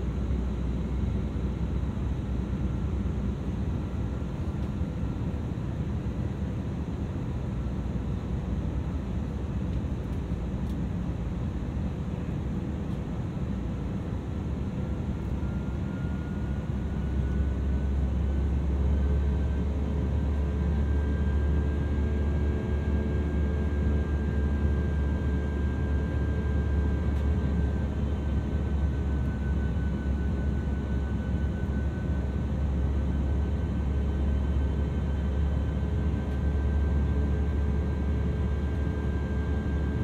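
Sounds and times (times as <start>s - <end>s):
aircraft cabin engine rumble: 0.0s - 40.0s.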